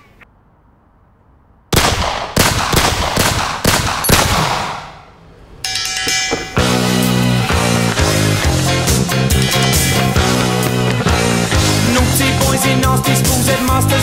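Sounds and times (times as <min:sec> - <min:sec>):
handgun shots: 0:01.8 - 0:05.0
music: 0:06.2 - 0:14.0.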